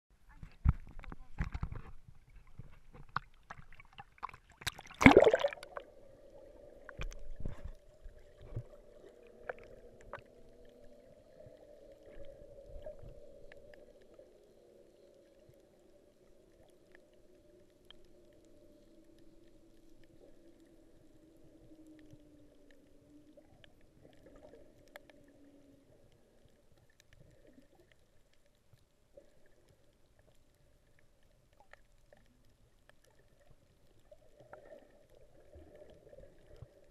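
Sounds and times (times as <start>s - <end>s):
underwater hum: 0.2s - 36.9s
camera splashing into water: 4.6s - 5.7s.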